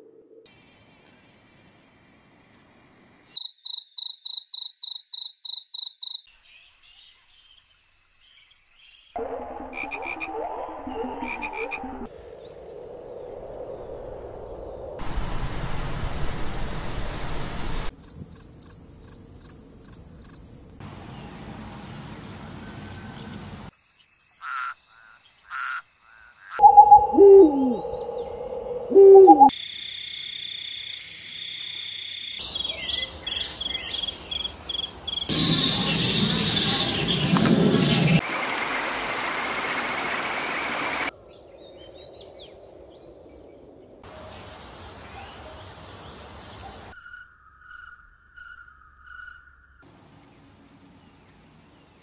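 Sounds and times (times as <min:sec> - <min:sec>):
insects chirping: 0:00.5 - 0:06.3, 0:12.2 - 0:20.8, 0:26.6 - 0:35.4, 0:47.0 - 0:52.0
insects buzzing in high trills: 0:15.0 - 0:20.8, 0:49.8 - 0:52.0
owl hoots: 0:26.6 - 0:29.5.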